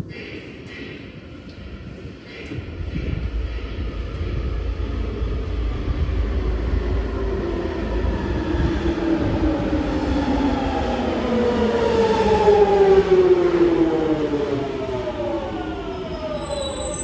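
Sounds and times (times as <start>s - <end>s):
low rumble: 0.0s - 10.9s.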